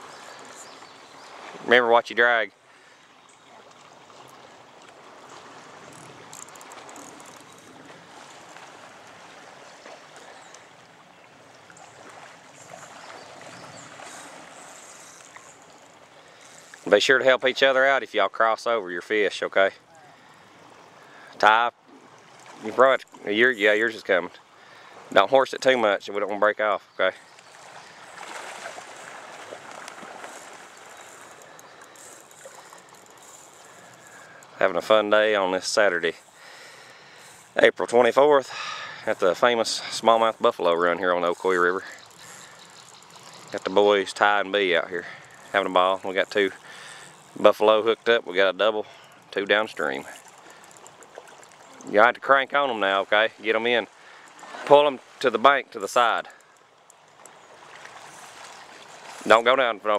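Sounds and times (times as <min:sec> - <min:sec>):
shallow river flowing: 0:00.0 - 0:59.9
faint ticks: 0:03.7 - 0:09.2, 0:09.8 - 0:10.9, 0:12.5 - 0:16.9, 0:27.3 - 0:34.6, 0:36.0 - 0:37.6, 0:41.3 - 0:44.2, 0:45.0 - 0:47.4, 0:48.9 - 0:51.9, 0:56.2 - 0:59.3.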